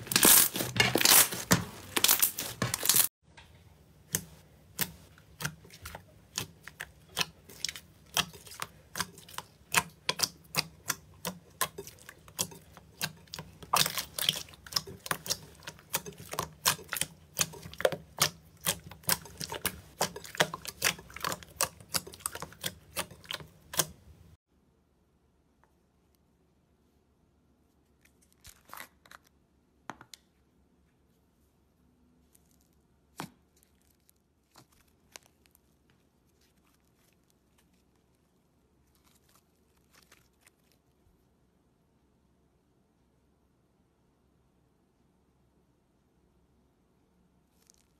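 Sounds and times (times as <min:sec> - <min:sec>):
slime crackling squish: 0:00.0 - 0:03.1, 0:04.1 - 0:24.4, 0:32.2 - 0:41.0, 0:47.5 - 0:47.9.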